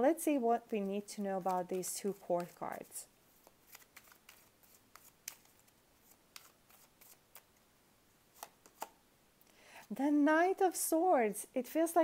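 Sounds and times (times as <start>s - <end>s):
cards being shuffled: 0.7s - 7.6s, 8.3s - 9.0s.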